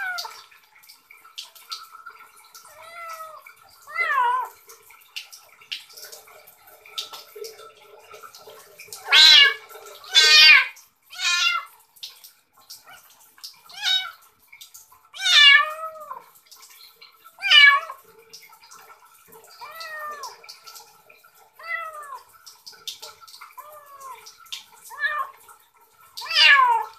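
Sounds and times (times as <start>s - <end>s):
kitten meowing: 9.1s - 11.7s, 13.8s - 14.2s, 15.2s - 16.2s, 17.4s - 18.0s, 26.2s - 26.9s.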